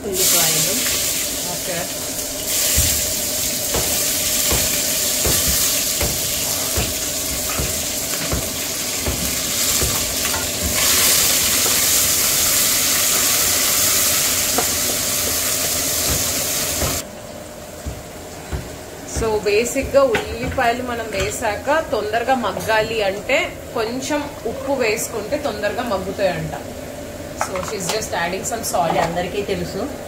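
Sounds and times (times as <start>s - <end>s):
onions sizzling in hot oil: 0.0s - 17.0s.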